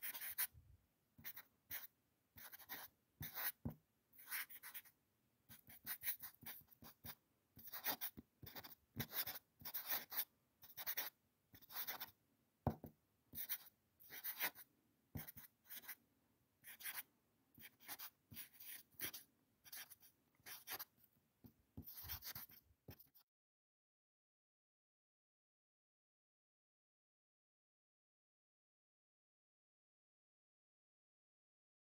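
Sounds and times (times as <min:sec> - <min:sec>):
pencil scratching on paper: 0:00.0 - 0:00.5, 0:01.2 - 0:04.9, 0:05.5 - 0:12.1, 0:12.7 - 0:16.0, 0:16.6 - 0:17.0, 0:17.6 - 0:20.9, 0:21.8 - 0:23.2.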